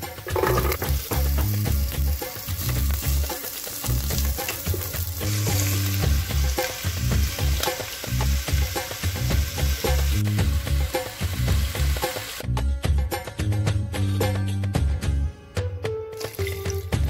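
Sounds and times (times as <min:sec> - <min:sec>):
onion and garlic sizzling in fat: 0:00.0 - 0:12.4
background music with bass line: 0:00.0 - 0:17.0.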